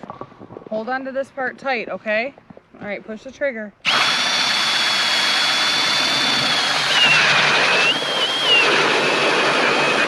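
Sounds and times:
cordless drill whining: 3.8s - 10.0s.

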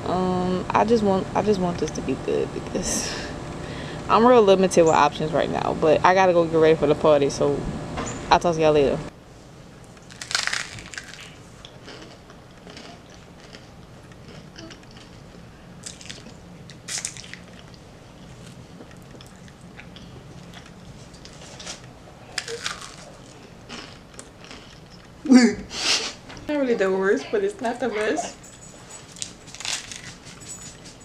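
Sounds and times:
close-up chewing: 10.0s - 25.2s
crunchy bite into toast: 10.1s - 13.7s, 22.4s - 24.6s.

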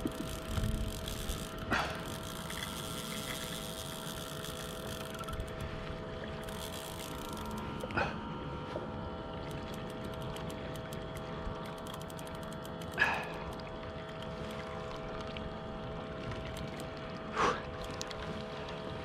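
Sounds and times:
steady hum: 0.0s - 19.0s
water lapping against kayak: 0.0s - 19.0s.

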